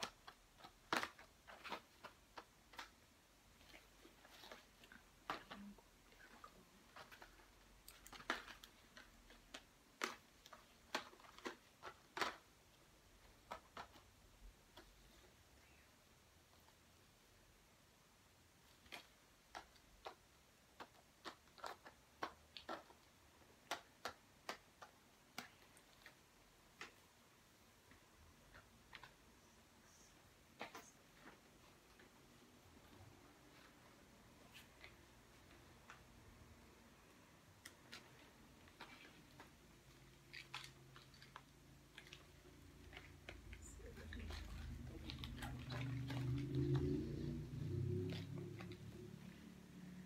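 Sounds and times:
faint irregular clicks and taps: 0.0s - 17.3s, 17.9s - 50.0s
low steady hum: 26.9s - 50.0s.

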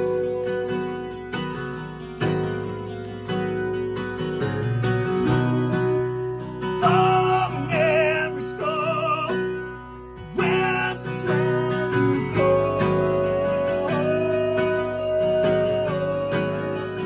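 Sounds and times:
man singing: 0.0s - 0.9s, 6.7s - 17.0s
second guitar: 0.0s - 17.0s
strummed acoustic guitar: 0.0s - 17.0s.

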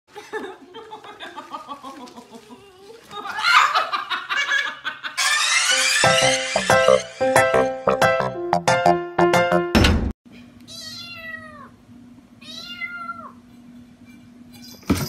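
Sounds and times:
music: 5.6s - 10.1s.

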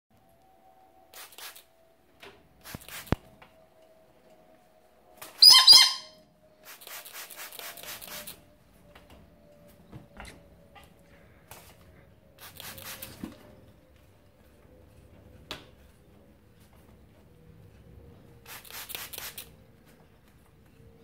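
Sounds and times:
spray bottle hissing: 1.2s - 1.7s, 2.6s - 3.2s, 6.6s - 8.4s, 12.4s - 13.2s, 18.5s - 19.5s
galah screeching: 5.4s - 6.2s.

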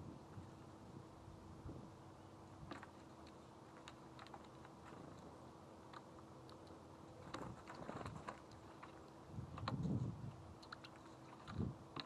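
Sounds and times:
faint steady hum: 0.0s - 12.0s
light clicks and ticks: 2.7s - 10.0s, 10.6s - 12.0s.

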